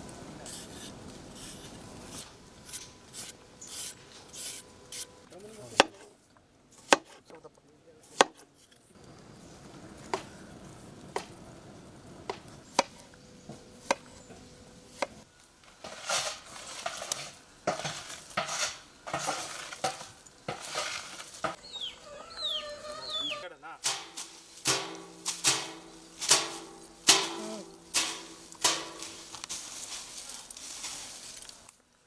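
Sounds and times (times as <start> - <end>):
scraping and rustling: 15.6 - 21.6, 24.0 - 31.7.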